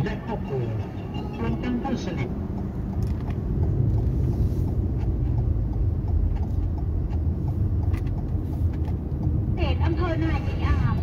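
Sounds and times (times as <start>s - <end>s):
car engine and road rumble: 0.0s - 11.0s
light regular ticking: 2.0s - 9.6s.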